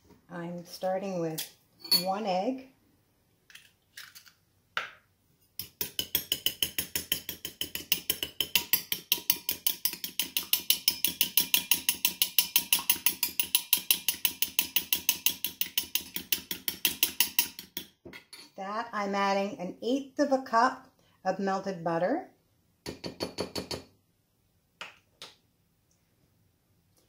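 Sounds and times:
spoon beating egg in glass bowl: 5.6 - 18.5.

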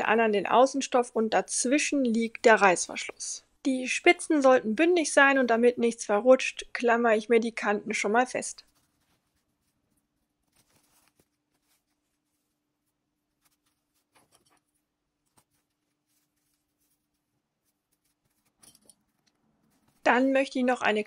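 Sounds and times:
fabric rustling: 8.6 - 21.0.

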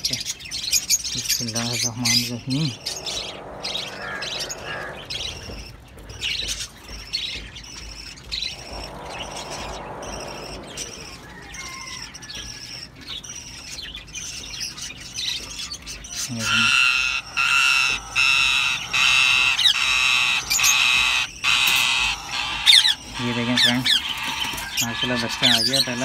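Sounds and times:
parakeets squawking and chirping: 0.8 - 6.4, 16.0 - 26.0.

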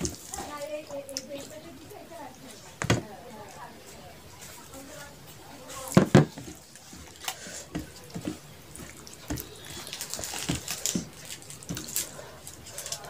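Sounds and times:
fingers squelching rice and curry: 3.4 - 13.0.

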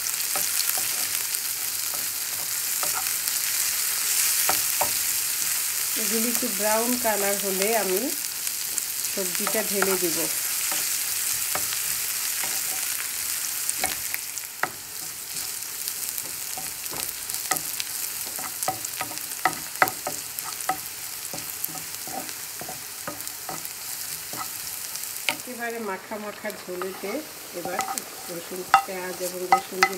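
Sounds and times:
onions sizzling in hot oil: 0.0 - 29.9
wooden spatula scraping pan: 26.4 - 29.9.

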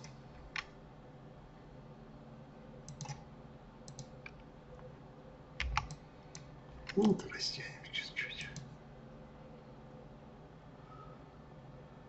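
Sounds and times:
faint steady hum: 0.0 - 12.0
mouse and keyboard clicks: 2.9 - 3.2, 3.9 - 4.4, 5.6 - 7.2.

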